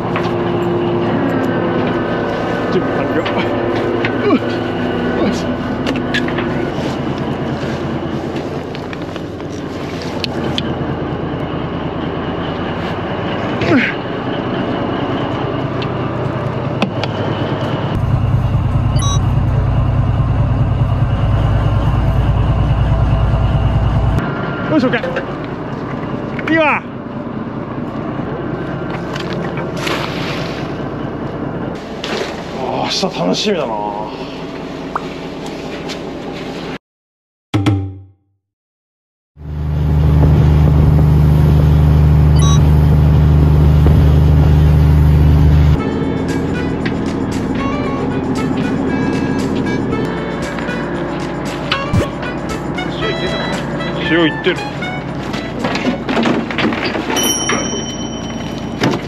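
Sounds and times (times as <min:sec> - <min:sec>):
boat engine rumbling: 0:00.0 - 0:24.2, 0:39.4 - 0:59.0
short high beep: 0:19.0 - 0:19.3, 0:42.4 - 0:42.8.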